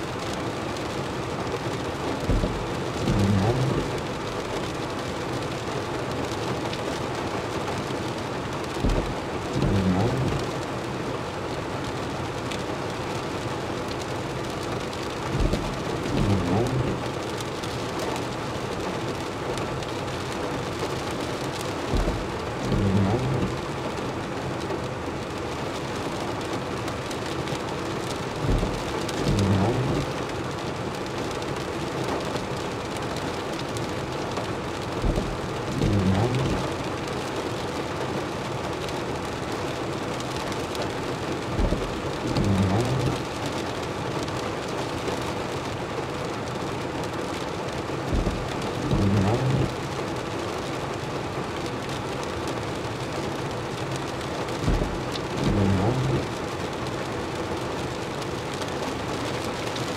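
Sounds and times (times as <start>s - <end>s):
rain on car windshield and roof: 0.0s - 59.9s
windshield wipers sweeping: 0.1s - 5.0s, 8.6s - 11.6s, 12.7s - 18.2s, 18.9s - 24.8s, 27.0s - 30.9s, 33.2s - 37.6s, 39.7s - 43.4s, 46.9s - 50.0s, 54.1s - 57.2s.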